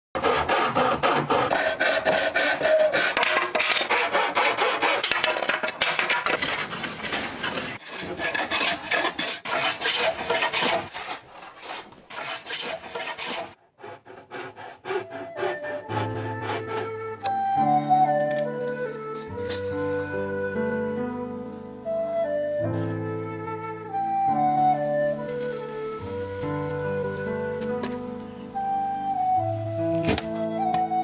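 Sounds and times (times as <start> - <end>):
hand plane shaving wood: 0.2 - 17.0
saw cutting wood: 0.2 - 17.0
music: 14.9 - 31.0.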